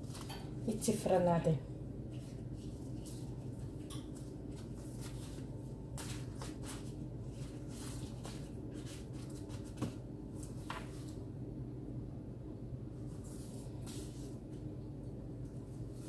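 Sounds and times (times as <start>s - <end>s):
pastry dough rustling: 0.0s - 1.4s, 2.0s - 11.3s, 12.9s - 14.7s
steady low hum: 0.0s - 16.0s.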